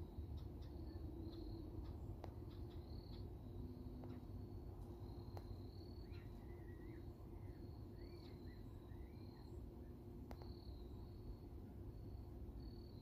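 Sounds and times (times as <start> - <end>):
faint insect-like trill: 0.0 - 13.0
bird chirps: 5.4 - 9.6
faint clicks: 10.3 - 10.5.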